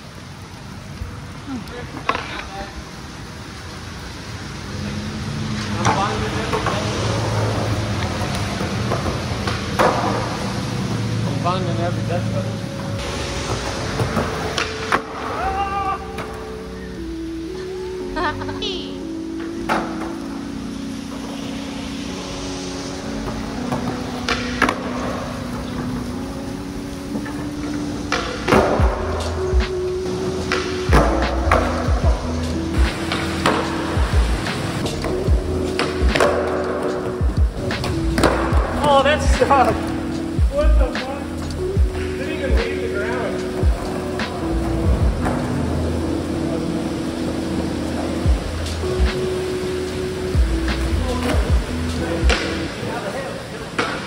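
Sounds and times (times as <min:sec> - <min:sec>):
rain hissing: 0:00.0 - 0:54.0
skateboard rolling on concrete: 0:00.0 - 0:54.0
skateboard clack: 0:01.9 - 0:02.8, 0:05.4 - 0:11.4, 0:12.8 - 0:16.6, 0:23.1 - 0:54.0.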